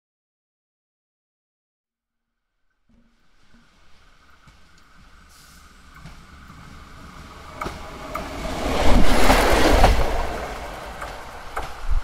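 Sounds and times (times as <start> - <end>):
wheels clicking over rail joints: 2.9 - 12.0
diesel railcar passing: 3.0 - 12.0.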